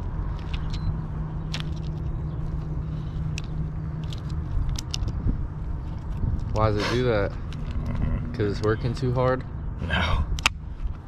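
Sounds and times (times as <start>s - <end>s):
low engine hum: 0.0s - 11.0s
small clicks and scrapes: 0.3s - 0.9s, 1.5s - 6.8s.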